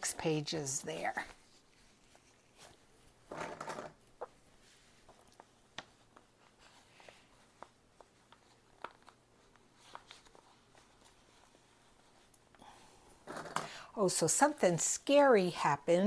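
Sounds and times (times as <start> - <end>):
paper pages handled: 1.1 - 12.6.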